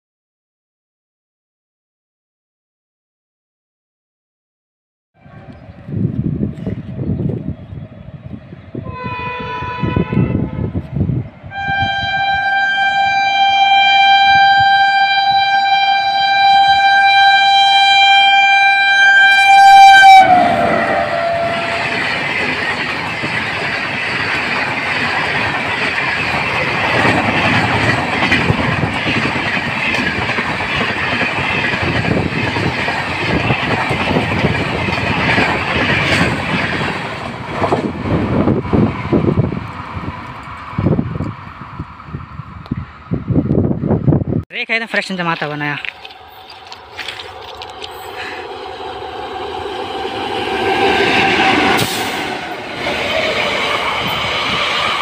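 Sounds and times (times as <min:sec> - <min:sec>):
train horn: 0:08.8 - 0:10.7, 0:11.5 - 0:22.2
train wheels clattering over rail joints: 0:21.8 - 0:39.3.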